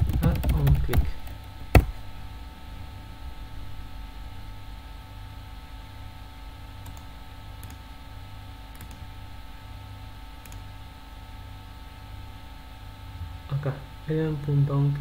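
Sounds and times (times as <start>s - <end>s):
low electrical hum: 0.0s - 15.0s
computer mouse clicks: 6.8s - 7.8s, 8.7s - 9.0s, 10.4s - 10.7s.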